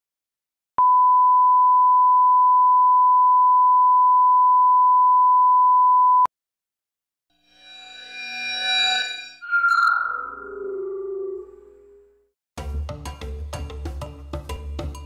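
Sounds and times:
high-pitched test tone beep: 7.7s - 11.4s.

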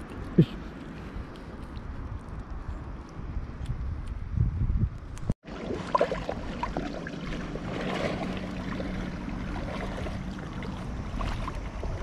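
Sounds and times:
water lapping on pebbly shore: 5.4s - 12.0s.

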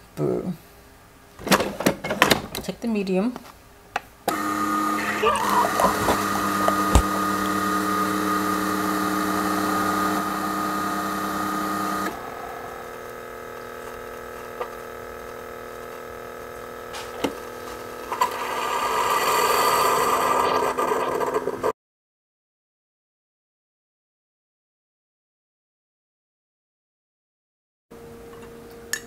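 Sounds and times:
coffee maker pump humming: 4.3s - 21.7s.

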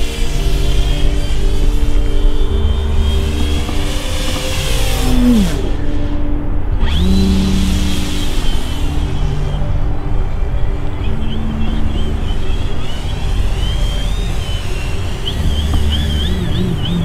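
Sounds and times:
model airplane electric motor whine: 6.8s - 9.4s.

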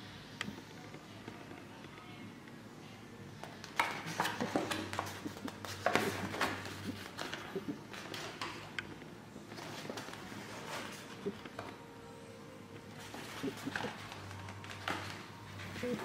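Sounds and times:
photobook pages turning: 3.6s - 8.7s, 9.5s - 11.8s, 12.9s - 16.0s.

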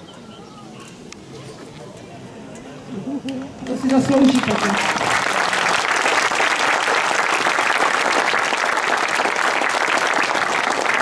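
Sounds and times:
crowd applauding: 3.6s - 11.0s.

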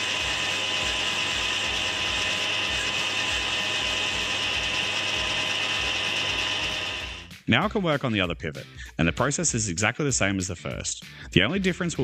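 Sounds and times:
metal lathe whirring: 0.0s - 7.3s.

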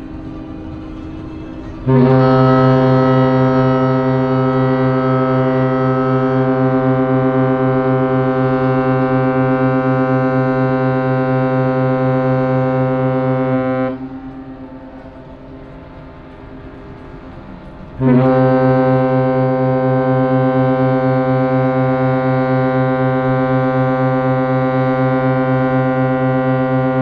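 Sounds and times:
ship horn deep blast: 0.0s - 27.0s.

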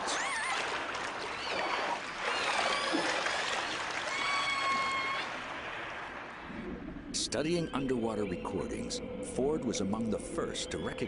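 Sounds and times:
killer whale calls: 4.0s - 5.5s.

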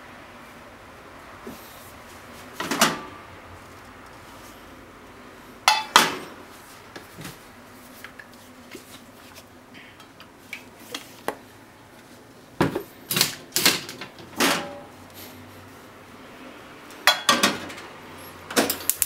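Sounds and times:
kitchenware clicks and taps: 17.0s - 17.8s.

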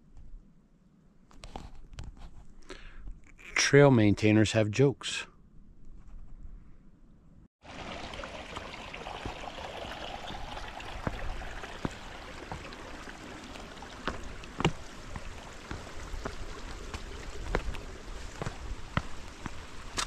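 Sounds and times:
steady rush like running water: 7.6s - 20.0s.

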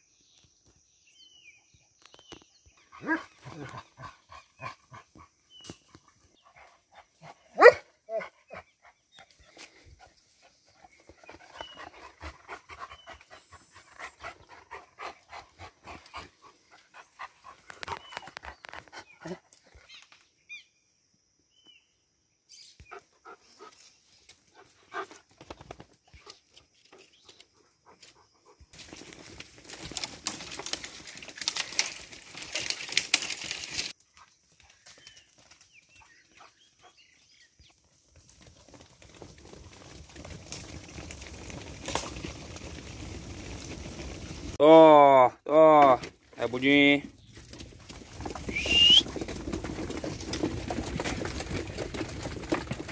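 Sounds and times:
dog panting: 10.0s - 17.9s.

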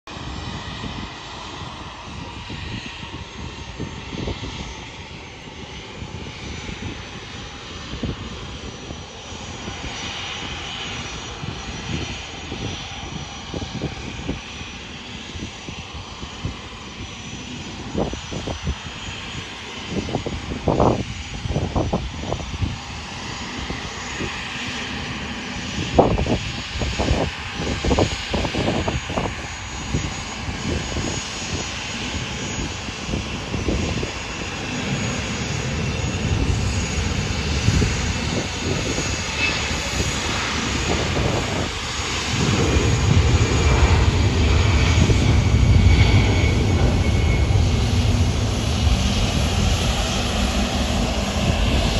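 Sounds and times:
jet engines hissing and whining: 0.1s - 51.9s.

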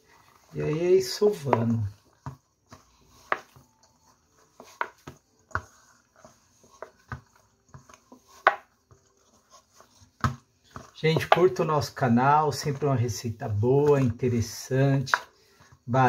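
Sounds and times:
dough thumping against metal bowl: 7.8s - 8.7s.

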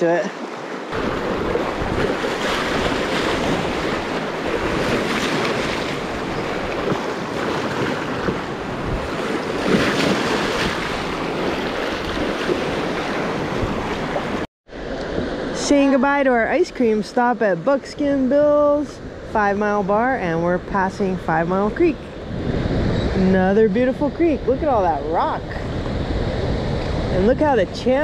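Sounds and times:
rushing river water: 0.0s - 17.0s
wind buffeting microphone: 0.5s - 17.1s, 18.0s - 28.0s.

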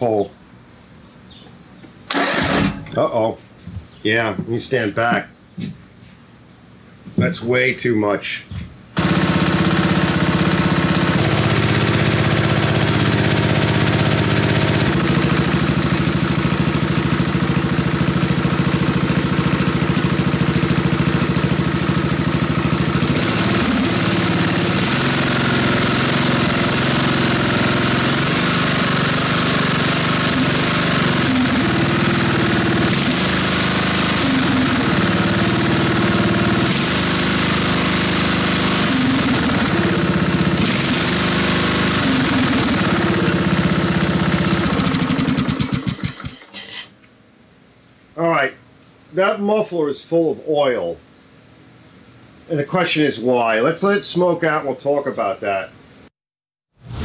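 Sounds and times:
lawn tractor engine running: 2.1s - 3.0s, 9.0s - 46.5s.

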